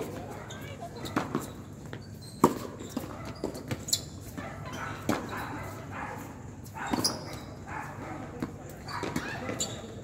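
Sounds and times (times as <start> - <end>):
tennis ball bouncing on court: 0.0 - 4.4, 5.0 - 5.4, 6.9 - 7.4, 8.4 - 9.8.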